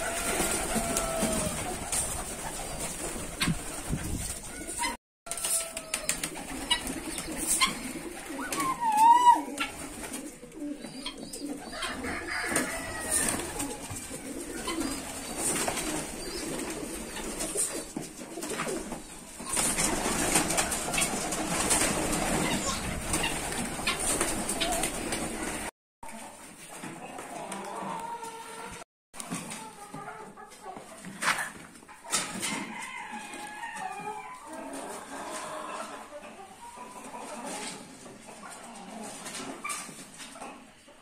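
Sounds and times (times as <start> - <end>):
pigeons cooing: 4.5 - 21.1.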